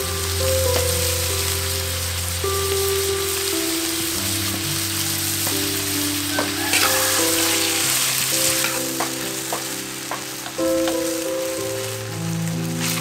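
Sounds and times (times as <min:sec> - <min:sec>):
meat sizzling in a wok: 0:00.0 - 0:13.0
metal spatula scraping a pan: 0:06.4 - 0:08.9.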